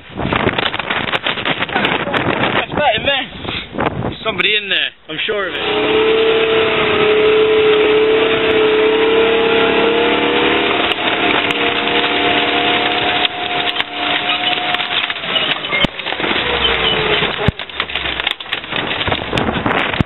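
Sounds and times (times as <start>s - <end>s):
heavy bangs: 5.5s - 20.0s
tank engine running: 5.5s - 20.0s
car body crunching: 10.9s - 20.0s.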